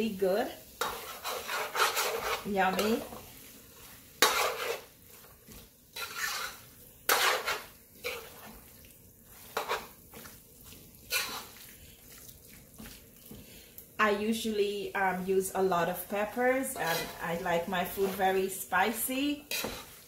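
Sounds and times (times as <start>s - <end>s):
metal spoon scraping metal pot: 0.8s - 3.0s, 4.2s - 4.9s, 6.0s - 8.3s, 11.1s - 11.5s, 16.8s - 17.2s, 19.4s - 19.9s.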